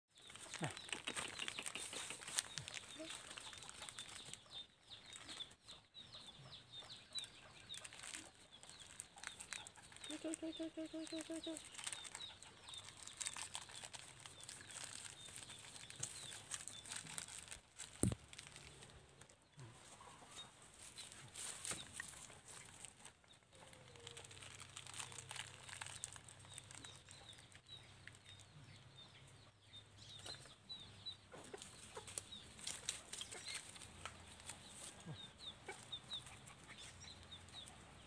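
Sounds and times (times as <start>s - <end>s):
rustles in grass and dry leaves: 0.2s - 5.6s, 7.8s - 20.0s, 20.6s - 28.4s, 31.6s - 35.2s.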